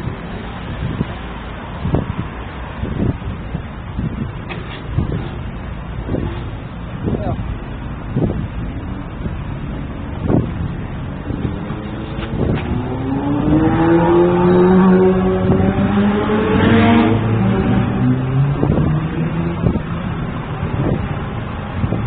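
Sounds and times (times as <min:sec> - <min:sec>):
traffic noise: 0:00.0 - 0:22.0
vehicle engine speeding up: 0:08.2 - 0:22.0.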